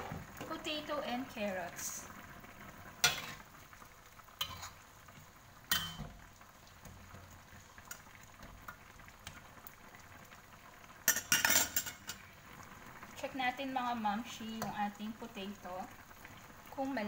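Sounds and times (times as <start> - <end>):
stew simmering in a wok: 0.0 - 17.0
metal spatula scraping a wok: 3.0 - 3.4, 4.4 - 4.8
spatula tapping a wok: 5.7 - 6.2.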